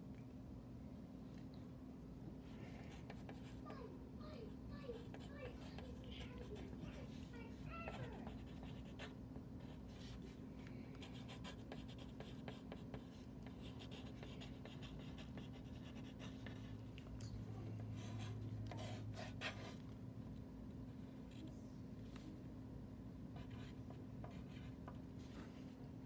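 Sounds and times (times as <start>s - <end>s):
faint low hum: 0.0s - 26.0s
pencil scratching on paper: 2.9s - 3.8s, 4.8s - 10.4s, 11.0s - 19.9s, 23.4s - 25.8s.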